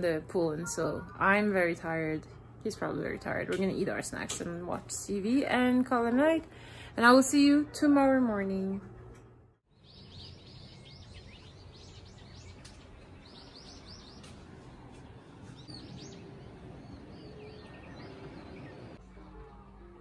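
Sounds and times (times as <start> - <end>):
low outdoor rumble: 0.0 - 20.0
birds chirping: 9.7 - 19.0.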